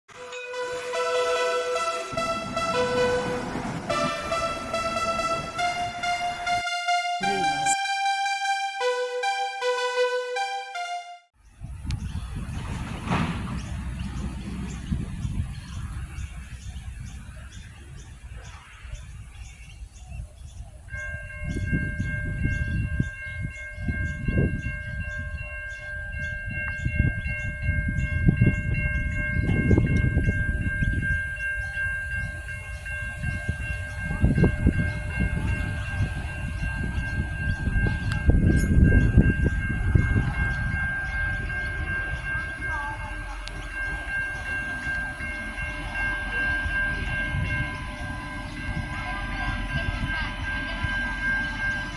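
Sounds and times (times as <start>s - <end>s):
steady high-pitched tone: 0.1s - 11.3s
railcar rumble: 0.1s - 51.9s.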